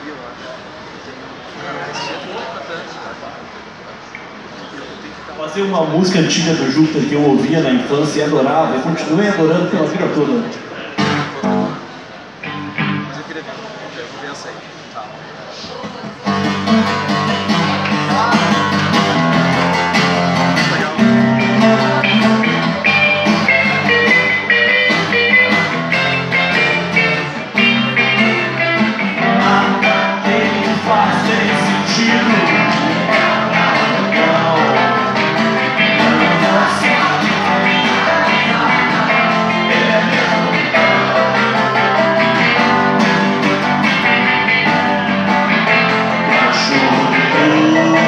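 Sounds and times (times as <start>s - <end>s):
live rock band playing: 11.0s - 13.1s, 16.1s - 48.0s.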